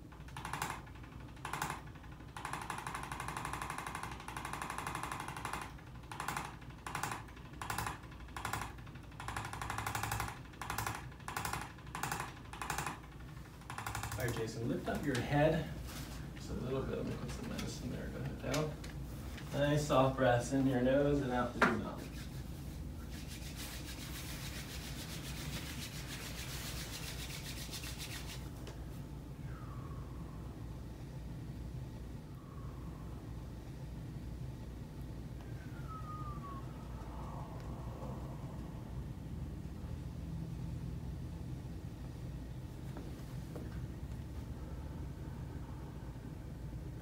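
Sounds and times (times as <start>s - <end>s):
hands rubbing together: 21.8s - 28.6s.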